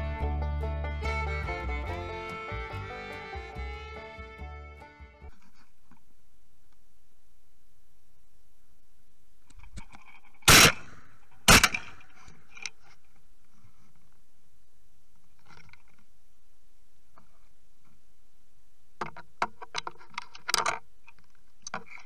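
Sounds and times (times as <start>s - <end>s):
shotgun shots: 10.5s - 12.1s.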